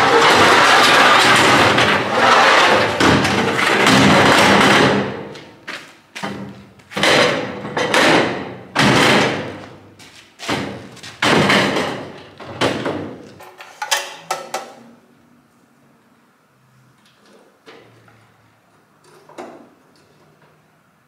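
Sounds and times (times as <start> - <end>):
metal ramps clanging: 0.0 - 5.3.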